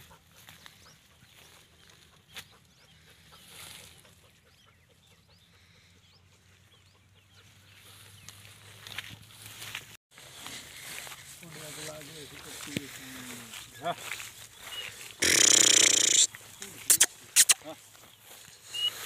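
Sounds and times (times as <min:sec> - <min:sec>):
open field ambience: 0:00.0 - 0:19.0
short bird chirps: 0:14.7 - 0:17.8.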